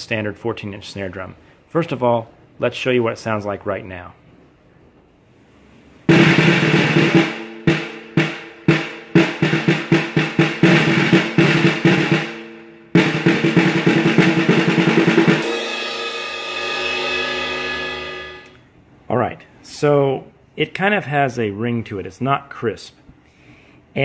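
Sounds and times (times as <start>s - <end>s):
snare drum played with sticks: 6.1s - 16.1s.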